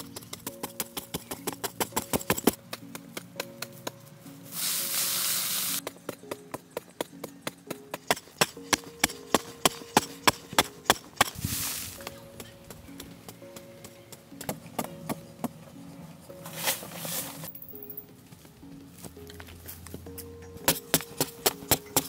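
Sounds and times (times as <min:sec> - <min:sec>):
dirt being scraped and tossed: 0:04.4 - 0:05.8, 0:08.1 - 0:12.2, 0:16.3 - 0:17.6
digging tool chopping sandy soil: 0:07.6 - 0:12.1, 0:20.7 - 0:22.0.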